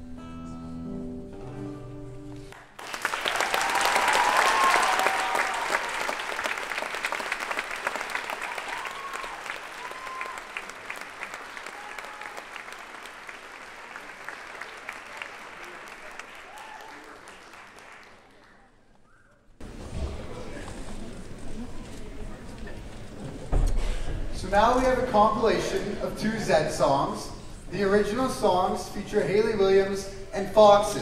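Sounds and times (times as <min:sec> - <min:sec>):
song with guitar: 0:00.0 - 0:02.6
audience applause: 0:02.5 - 0:18.8
audience cheers and whoops: 0:03.3 - 0:06.4, 0:08.2 - 0:10.8, 0:11.5 - 0:12.6, 0:16.4 - 0:17.1.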